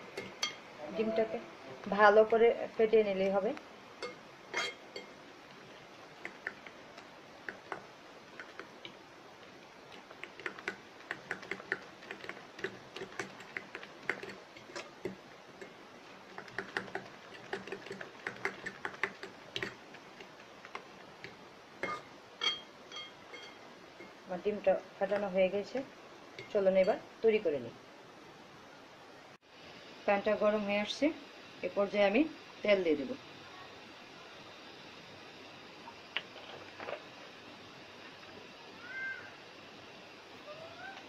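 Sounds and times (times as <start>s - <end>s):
fork beating eggs in a bowl: 4.0s - 24.2s.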